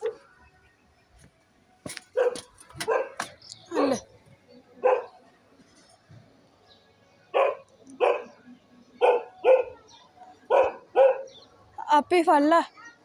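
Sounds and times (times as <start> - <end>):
dog barking: 2.2 - 3.9, 4.8 - 5.2, 7.3 - 8.3, 9.0 - 9.8, 10.5 - 11.4.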